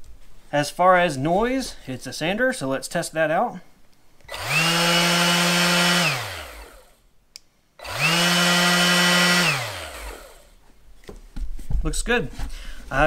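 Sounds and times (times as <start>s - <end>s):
orbital sander motor whine: 4.3s - 7.0s, 7.8s - 10.6s.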